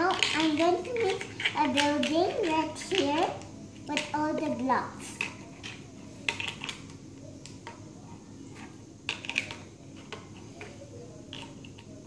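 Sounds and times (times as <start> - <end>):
plastic toy blocks clicking: 0.0 - 3.4, 9.1 - 9.6.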